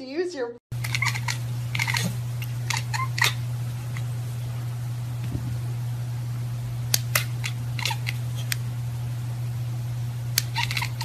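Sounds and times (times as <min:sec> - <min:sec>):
steady low hum: 0:00.7 - 0:11.0
sharp clicks: 0:06.9 - 0:08.7.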